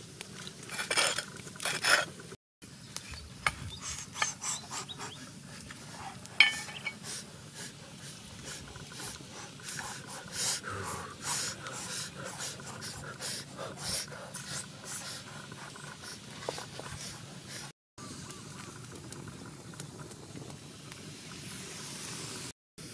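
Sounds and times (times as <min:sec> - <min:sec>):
sharp clink: 0:06.4 - 0:07.0.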